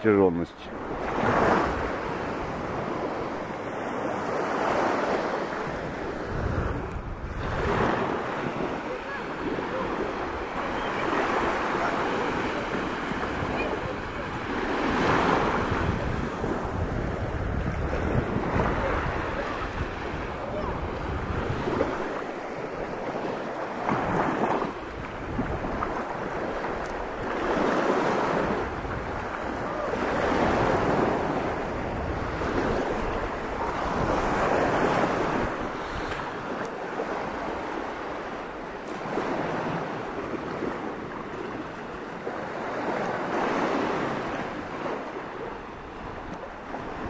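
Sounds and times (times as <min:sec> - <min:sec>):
small waves on sandy beach: 0:00.0 - 0:47.0
wind rumbling on microphone: 0:05.6 - 0:37.5.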